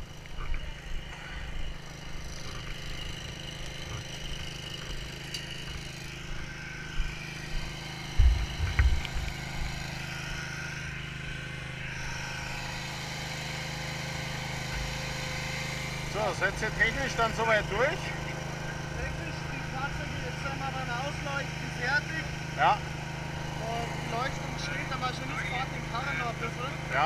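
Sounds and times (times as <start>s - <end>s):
engines droning: 0.0s - 27.0s
dull low thumps: 7.0s - 9.7s.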